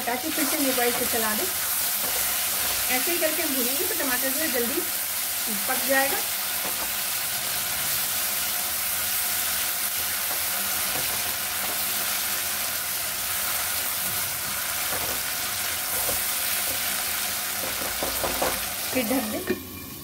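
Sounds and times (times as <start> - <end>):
masala sizzling in hot oil: 0.0 - 20.0
spoon knocking against pan: 17.6 - 18.7.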